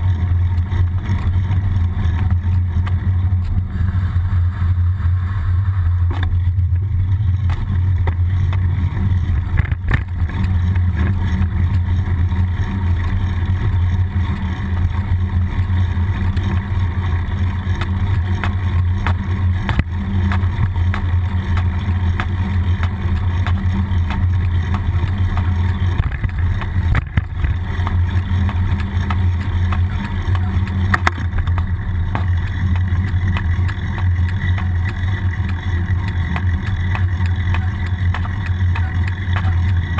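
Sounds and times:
bike clicks and knocks over bumps: 0.0 - 4.6, 5.9 - 39.9
road noise: 0.0 - 39.9
wind rumble: 0.0 - 39.9.

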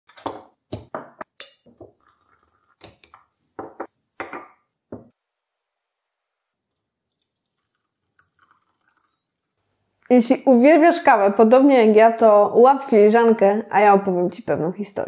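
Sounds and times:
crockery clinking on wood: 3.6 - 5.1.

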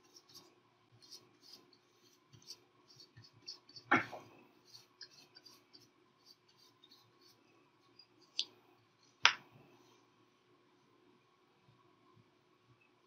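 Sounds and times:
paintbrush rustling on paper: 0.0 - 8.4.

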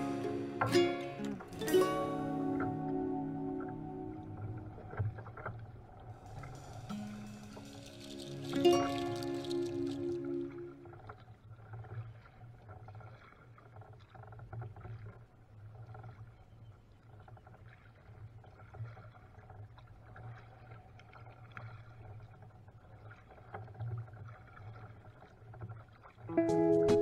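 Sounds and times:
music: 0.0 - 5.0, 6.3 - 11.0, 26.3 - 27.0
low steady rumble: 2.9 - 11.1
small water splashes and drips: 3.6 - 26.4.

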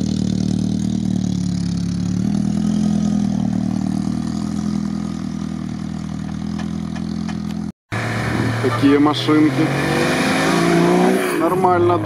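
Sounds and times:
car engine idling: 0.0 - 9.5.

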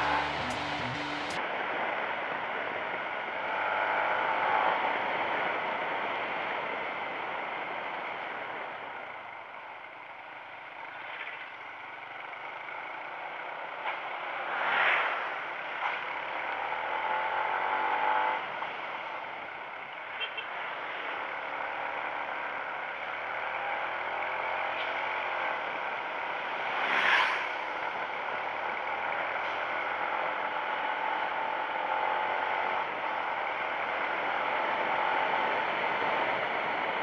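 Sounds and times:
motorcycle engine: 0.0 - 1.4
vehicle passing whoosh: 26.6 - 27.8.

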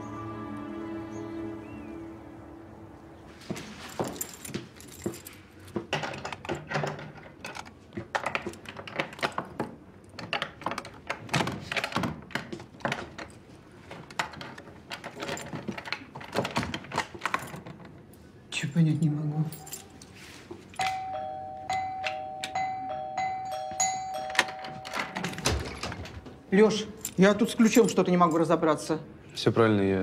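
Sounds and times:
keys jingling: 3.7 - 6.5, 18.9 - 28.6.

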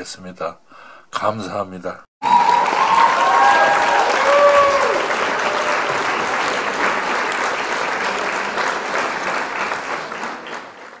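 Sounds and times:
applause: 2.2 - 11.0.

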